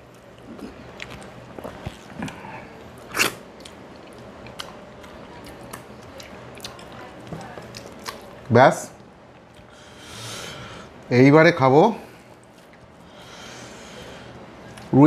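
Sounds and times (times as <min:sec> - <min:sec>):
chewing: 0:00.0 - 0:09.8, 0:12.2 - 0:13.3.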